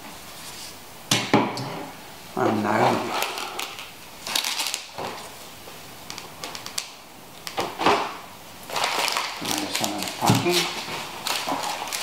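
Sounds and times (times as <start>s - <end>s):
paper and plastic rustling: 2.6s - 12.0s.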